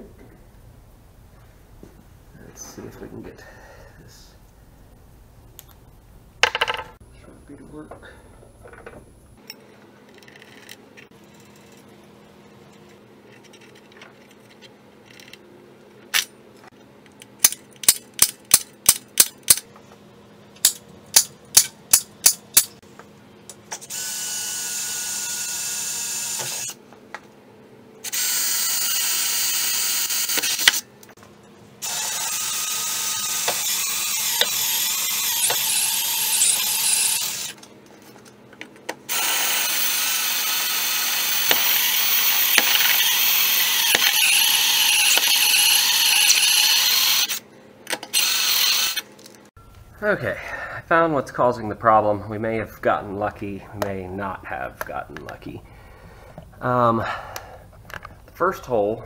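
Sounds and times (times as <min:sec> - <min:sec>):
drill boring into steel: 0:31.8 - 0:37.6, 0:39.1 - 0:47.4, 0:48.1 - 0:49.0.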